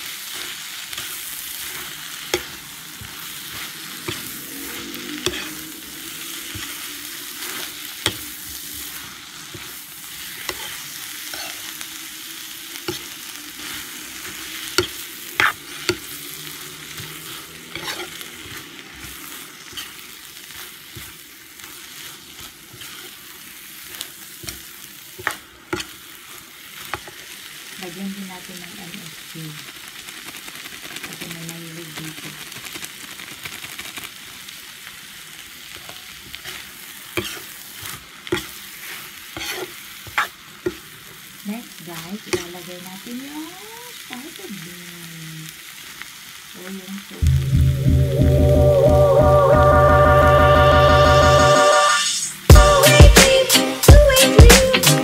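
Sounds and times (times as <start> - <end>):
food sizzling in a pan: 0.0 - 55.0
metal spatula scraping pan: 1.6 - 5.8, 9.5 - 11.7, 14.3 - 16.1, 17.0 - 19.1, 36.3 - 37.6, 38.3 - 40.8.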